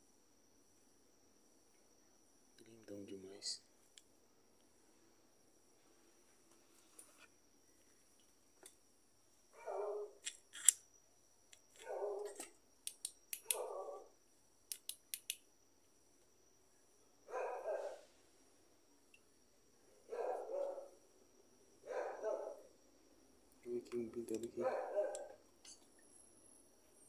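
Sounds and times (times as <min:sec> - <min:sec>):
sharp high clicks: 0:10.2 - 0:10.9, 0:11.5 - 0:13.7, 0:14.7 - 0:15.5.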